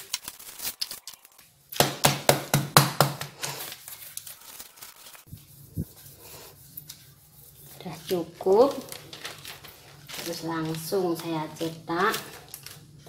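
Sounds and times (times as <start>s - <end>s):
plastic bag crinkling: 0.0s - 1.6s, 3.4s - 5.3s, 8.3s - 13.0s.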